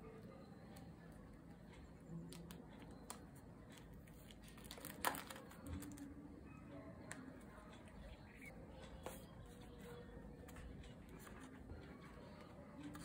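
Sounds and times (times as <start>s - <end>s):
plastic sleeves crinkling and clicking: 2.3s - 6.1s.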